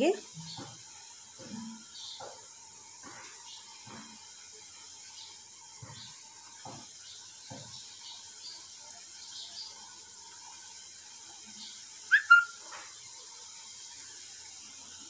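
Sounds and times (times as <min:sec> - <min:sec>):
oil sizzling while frying: 0:00.0 - 0:15.0
short high-pitched call: 0:12.1 - 0:12.6.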